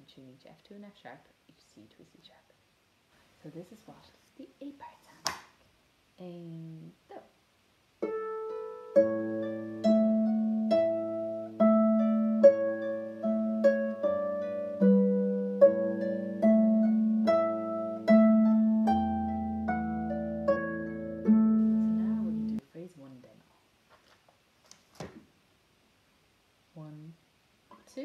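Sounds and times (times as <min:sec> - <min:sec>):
harp playing slow tune: 0:08.0 - 0:22.6.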